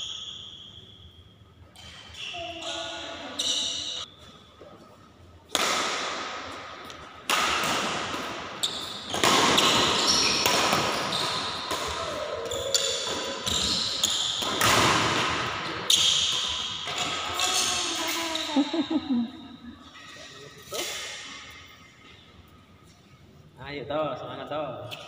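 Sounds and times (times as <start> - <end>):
rackets hitting shuttlecock: 5.5 - 17.8.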